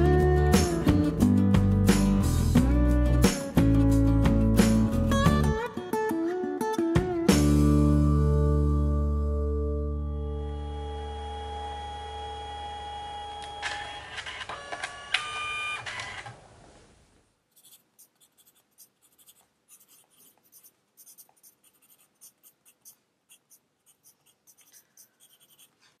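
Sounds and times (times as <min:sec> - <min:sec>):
background music: 0:00.0 - 0:11.1
pencil scratching on paper: 0:17.5 - 0:26.0.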